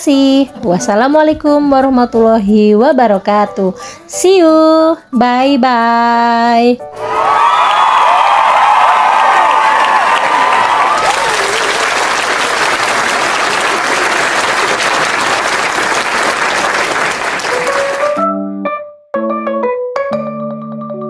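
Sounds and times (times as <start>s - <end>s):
applause: 7.4s - 18.2s.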